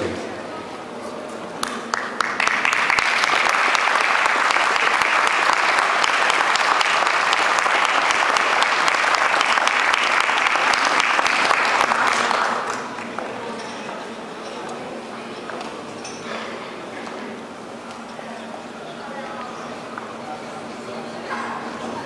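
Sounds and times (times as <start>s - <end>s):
audience applauding: 1.6s - 13.6s.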